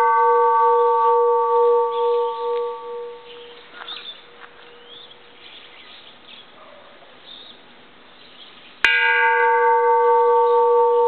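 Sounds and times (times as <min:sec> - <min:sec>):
temple bell ringing: 0:00.0 - 0:03.8, 0:08.9 - 0:11.0.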